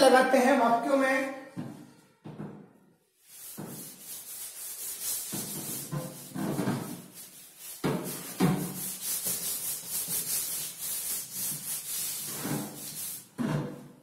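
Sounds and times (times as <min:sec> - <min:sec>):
rubbing strokes on chalkboard: 0:03.2 - 0:13.4.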